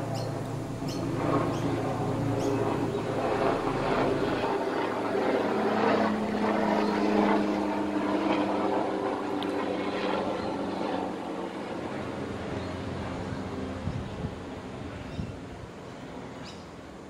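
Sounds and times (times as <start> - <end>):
motor engine droning: 0.0 - 10.7.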